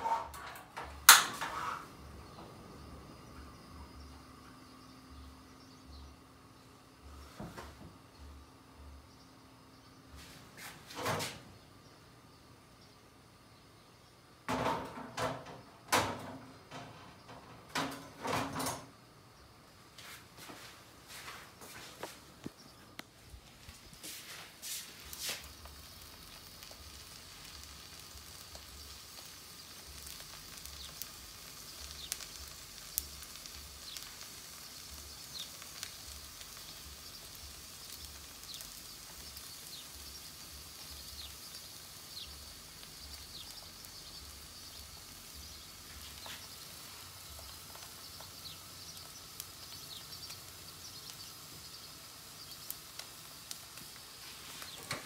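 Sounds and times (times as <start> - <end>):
oil pops and crackles: 0.3 - 1.6, 25.0 - 55.0
egg sizzling in oil: 21.1 - 55.0.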